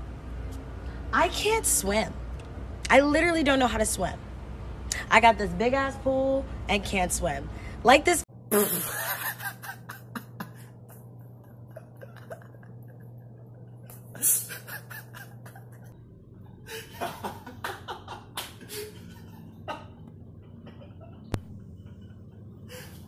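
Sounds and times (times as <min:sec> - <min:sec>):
man laughing: 0:08.5 - 0:15.9, 0:16.7 - 0:20.0, 0:20.6 - 0:21.3.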